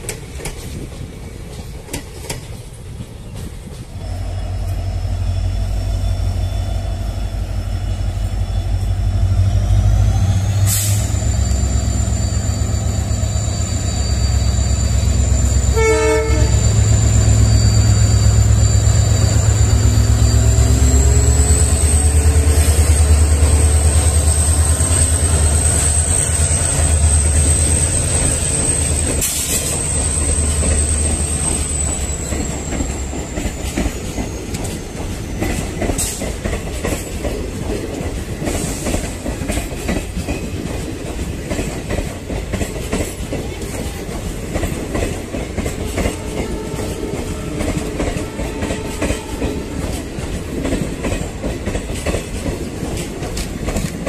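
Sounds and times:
diesel locomotive engine rumble: 0:00.0 - 0:54.0
train horn toot: 0:10.6 - 0:22.7, 0:45.8 - 0:50.1.

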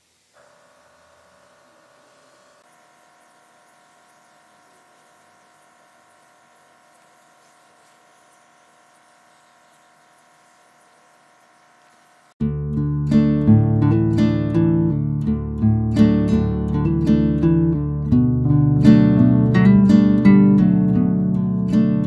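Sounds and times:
faint steady hum: 0:00.0 - 0:12.4
paint spray gun hissing: 0:00.0 - 0:12.4.

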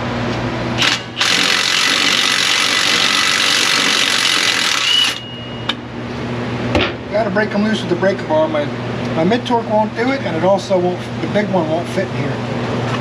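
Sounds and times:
impact wrench spinning: 0:00.8 - 0:05.2.

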